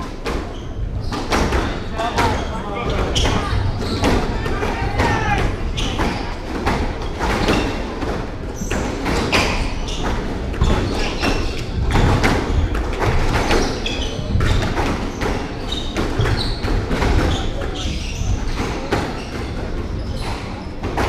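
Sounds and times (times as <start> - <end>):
sneaker squeaks on wooden floor: 0.0 - 7.9, 8.6 - 21.0
squash ball hits: 3.0 - 19.8.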